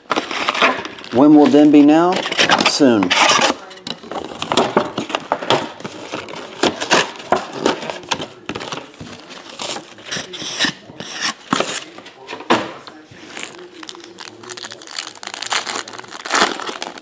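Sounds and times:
foil wrappers crinkling: 0:13.2 - 0:17.0.

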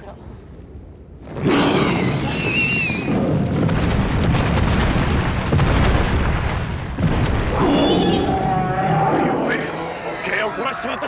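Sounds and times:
explosive rumble: 0:00.6 - 0:08.8
wavering high screech: 0:09.2 - 0:11.0.

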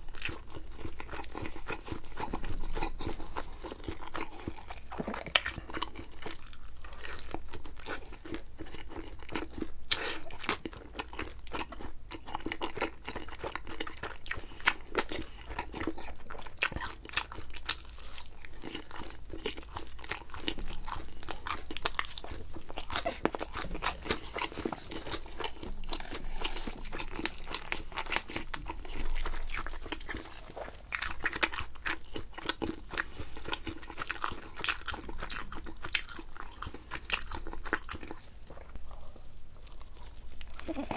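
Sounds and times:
chewing crunchy pizza: 0:00.0 - 0:40.9.

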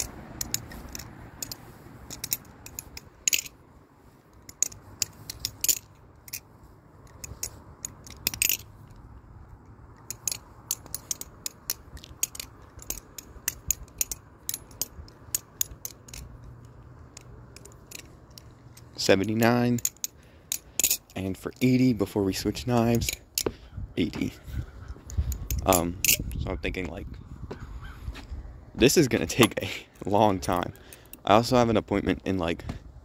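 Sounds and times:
butterfly knife clacking: 0:00.0 - 0:03.6.

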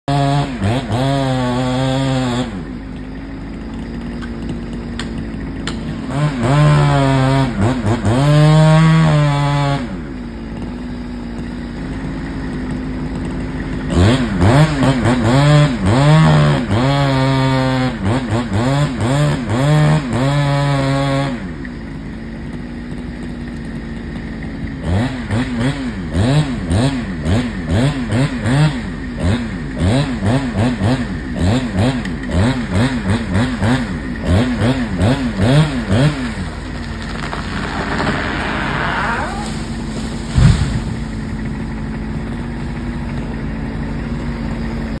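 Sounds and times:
chainsaw revving and idling: 0:00.0 - 0:45.0
rush of branches: 0:35.9 - 0:43.6
tree falling with heavy thud: 0:36.1 - 0:43.1.

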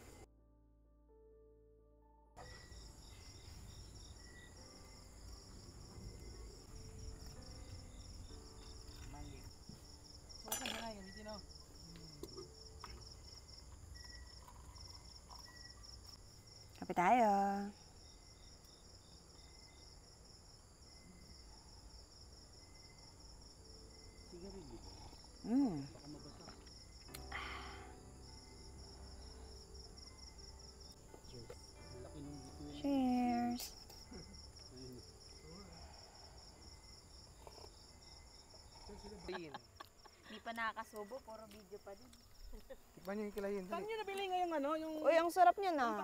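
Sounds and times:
insects chirping: 0:00.0 - 0:00.3, 0:02.4 - 0:46.0
steady high hiss: 0:27.0 - 0:36.6.

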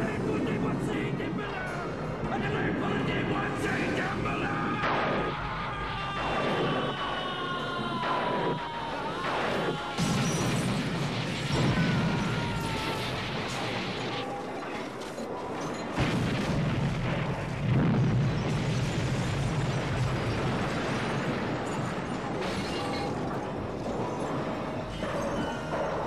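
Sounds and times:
explosion blast: 0:03.1 - 0:14.3, 0:16.0 - 0:25.2
rumbling roar of flying debris: 0:15.3 - 0:25.4.

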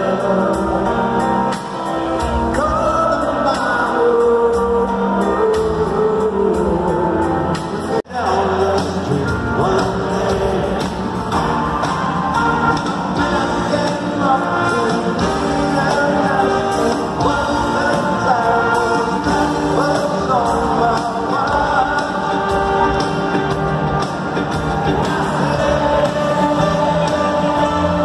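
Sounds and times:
live rock band with singer: 0:00.0 - 0:28.0.

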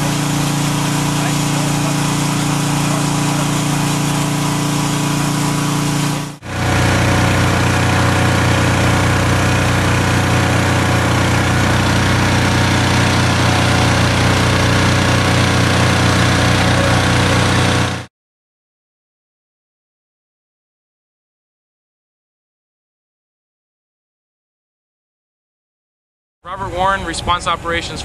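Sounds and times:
generator engine running: 0:00.0 - 0:18.1.

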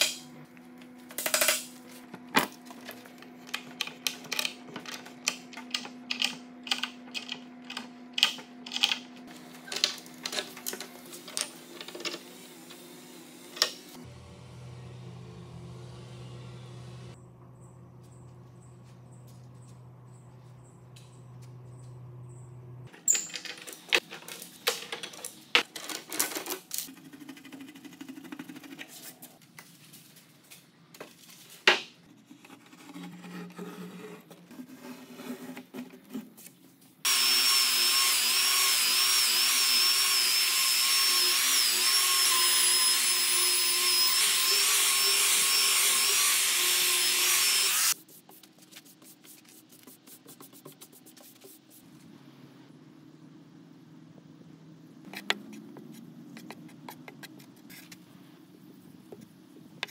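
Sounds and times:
power tool whining on wood: 0:37.1 - 0:48.0.

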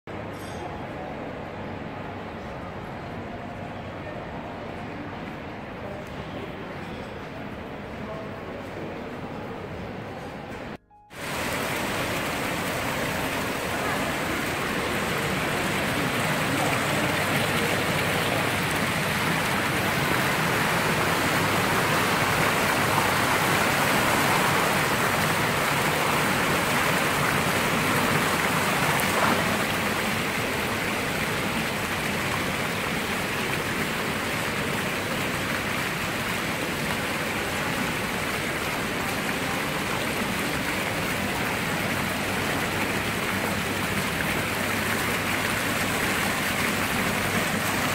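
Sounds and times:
fountain water splashing: 0:11.1 - 0:47.9.

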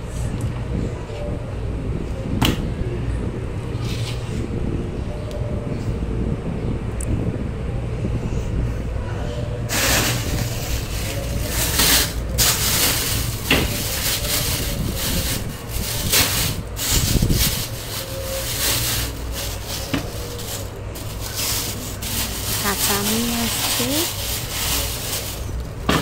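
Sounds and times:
groceries rustling on plastic tray: 0:09.7 - 0:26.0.

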